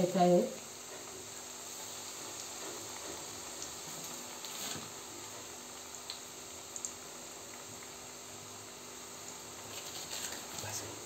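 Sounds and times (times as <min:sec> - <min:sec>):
food sizzling in hot oil: 0:00.0 - 0:11.0
oil pops and crackles: 0:02.4 - 0:08.0.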